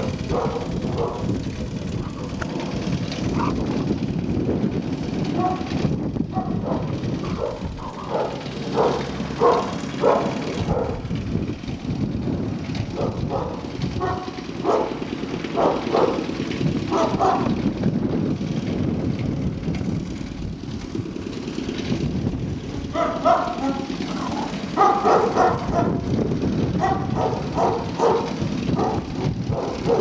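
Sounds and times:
puppies yipping and barking: 0.0s - 1.3s, 2.0s - 3.7s, 6.4s - 11.0s, 13.0s - 16.3s, 16.9s - 17.6s, 22.9s - 26.1s, 26.8s - 30.0s
steady low rumble: 0.0s - 30.0s.

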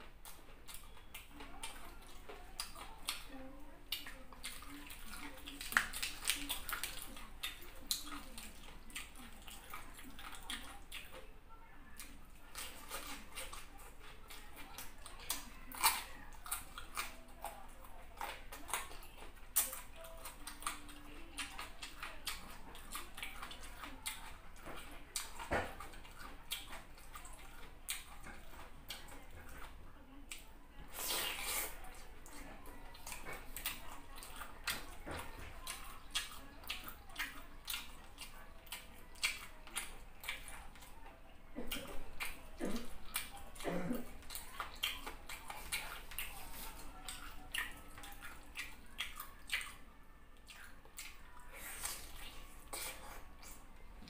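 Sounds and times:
wet chewing: 0.0s - 54.0s
lip smacks: 18.2s - 31.8s.

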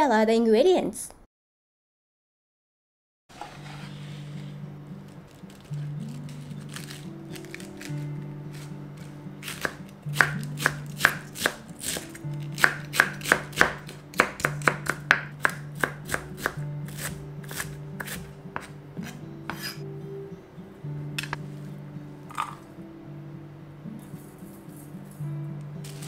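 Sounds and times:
soft background music: 3.4s - 26.0s
knife chopping on wooden board: 9.4s - 19.8s.

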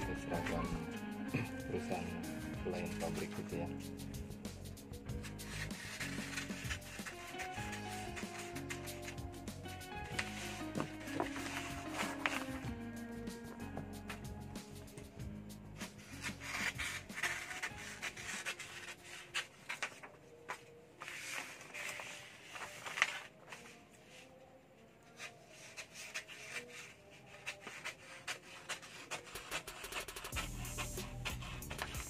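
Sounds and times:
paper sheets rustling and crinkling: 0.1s - 0.8s, 2.7s - 3.6s, 5.2s - 9.2s, 10.0s - 12.8s, 15.8s - 24.4s, 25.0s - 32.0s.

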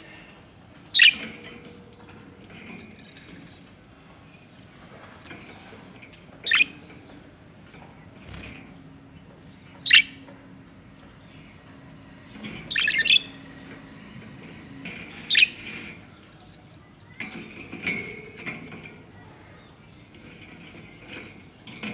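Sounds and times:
budgerigars chirping: 1.0s - 1.2s, 6.5s - 6.7s, 9.8s - 10.2s, 12.7s - 13.4s, 15.2s - 15.6s
wings fluttering: 8.1s - 8.8s.

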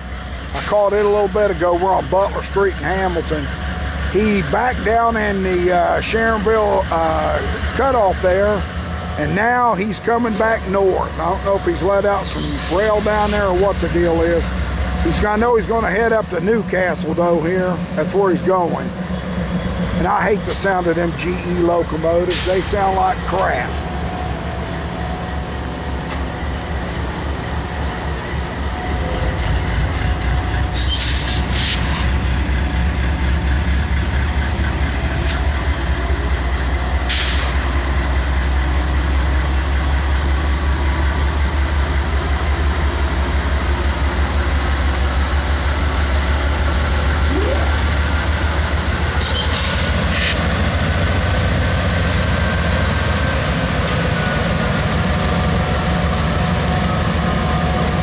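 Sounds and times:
diesel locomotive engine rumbling: 0.0s - 58.0s
sharp high-pitched train noises: 12.1s - 13.9s, 18.7s - 20.9s, 28.9s - 32.2s, 49.2s - 50.4s.

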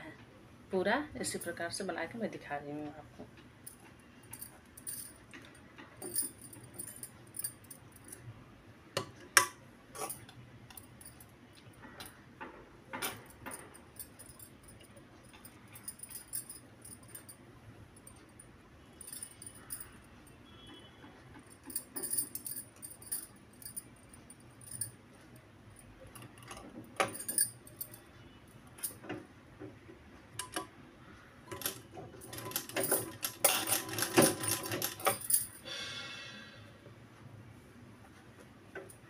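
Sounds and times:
glass bangles clinking: 3.7s - 5.2s, 6.0s - 8.2s, 13.2s - 17.4s, 19.0s - 20.7s, 21.5s - 25.0s, 27.0s - 28.1s.

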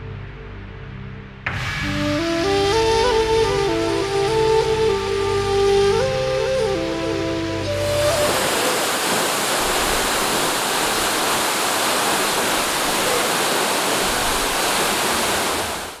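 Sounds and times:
waterfall rushing: 7.6s - 16.0s.

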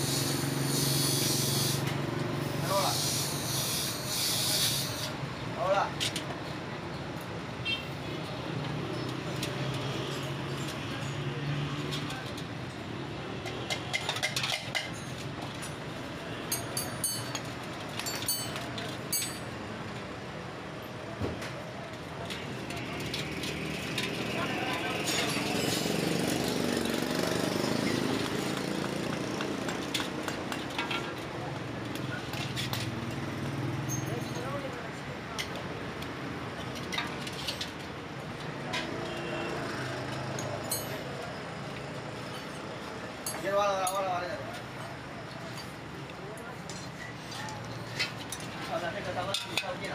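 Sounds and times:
steady background noise: 0.0s - 49.9s
street noise: 0.0s - 49.9s
metal parts clinking: 16.5s - 19.6s.

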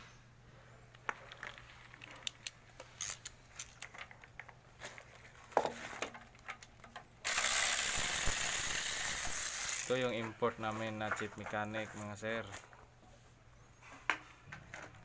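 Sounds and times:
metal tools clinking: 1.3s - 4.2s.

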